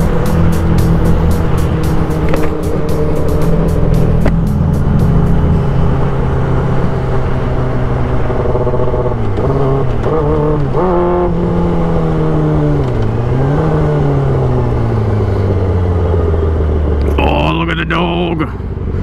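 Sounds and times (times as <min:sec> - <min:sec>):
motorcycle engine revving: 0:00.0 - 0:17.1.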